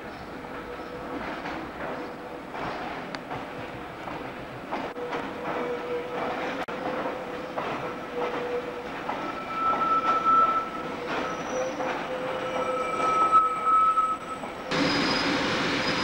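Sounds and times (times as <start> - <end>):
rail joint clicks: 0.0 - 16.0
train wheels squealing: 5.0 - 16.0.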